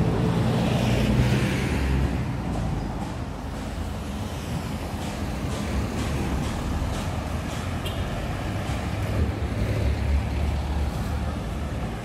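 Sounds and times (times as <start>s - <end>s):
cars driving past: 0.0s - 12.0s.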